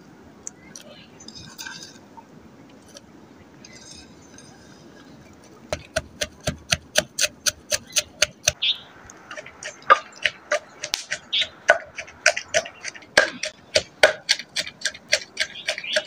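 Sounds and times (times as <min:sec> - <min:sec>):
wooden pestle pounding in mortar: 0:05.7 - 0:08.6, 0:09.4 - 0:16.0.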